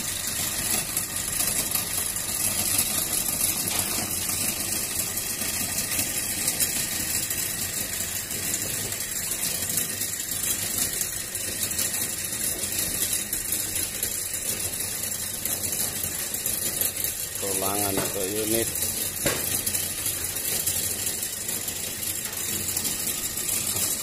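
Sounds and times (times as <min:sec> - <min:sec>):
machinery motor running: 0:00.0 - 0:24.0.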